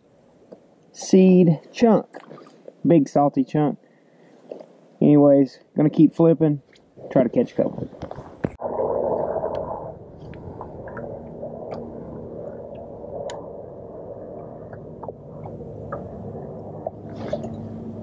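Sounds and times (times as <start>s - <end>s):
electric trolling motor humming: 8.7s - 18.0s.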